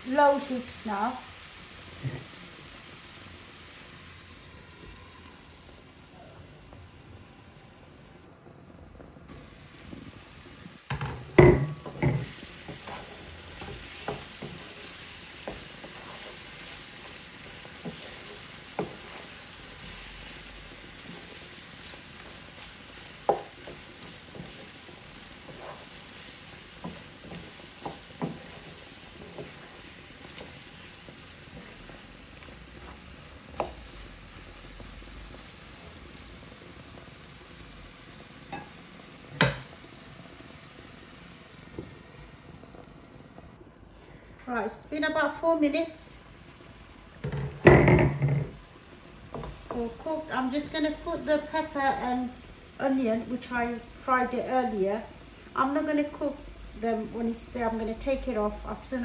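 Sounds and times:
curry sizzling in a frying pan: 0.0 - 8.3, 9.3 - 43.6, 44.5 - 59.0
wooden spatula knocking pan: 10.9 - 14.8, 23.1 - 24.8, 39.4 - 39.7, 47.2 - 48.6.

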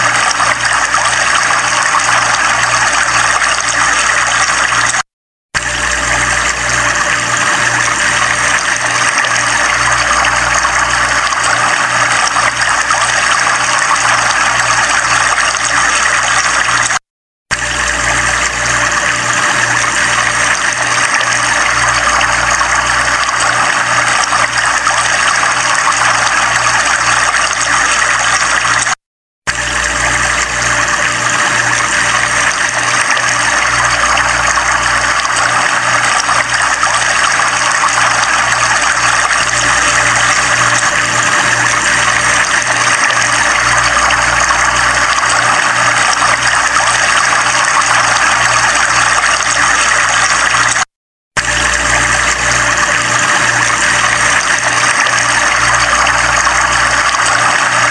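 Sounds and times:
river water pouring over weir: 0.0 - 5.0, 5.6 - 17.0, 17.6 - 50.8, 51.4 - 57.9.

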